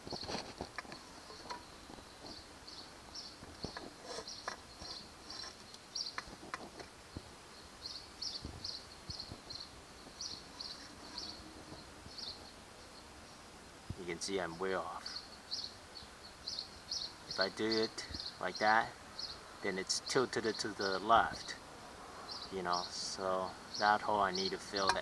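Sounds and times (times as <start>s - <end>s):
insects chirping: 0.0s - 13.4s
light knocks and handling noises: 24.7s - 25.0s.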